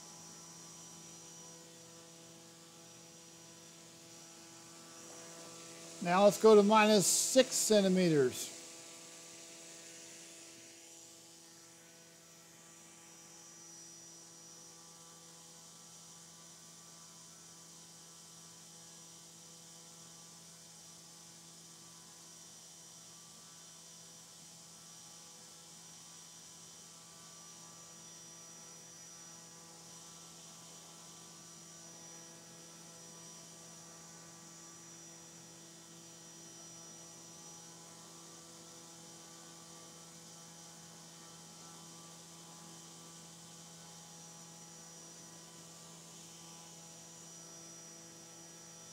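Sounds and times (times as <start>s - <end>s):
thin high whine: 4.1s - 8.8s.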